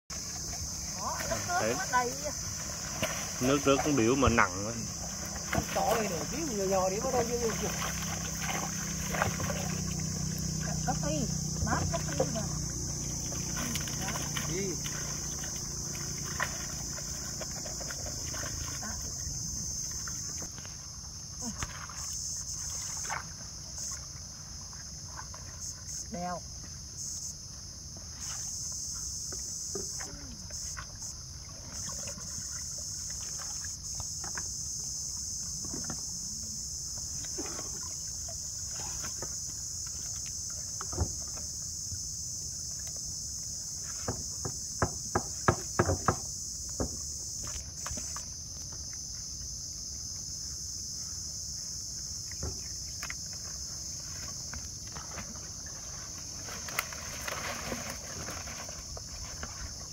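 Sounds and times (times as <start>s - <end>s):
insects chirring: 0.0s - 59.9s
sharp knocks in wooden boat: 40.8s - 41.4s, 44.0s - 47.0s, 52.4s - 52.7s
wet net rustling: 54.0s - 59.9s.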